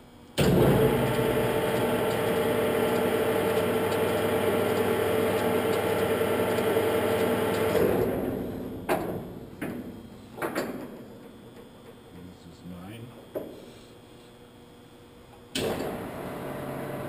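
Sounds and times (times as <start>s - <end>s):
grinder motor humming: 0.5s - 8.3s.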